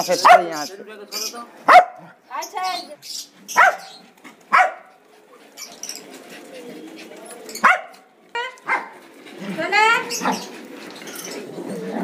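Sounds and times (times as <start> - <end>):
dogs barking: 0.1 - 0.7, 1.6 - 2.2, 3.5 - 5.0, 7.6 - 10.7
dog yipping: 3.5 - 4.9, 7.6 - 8.9.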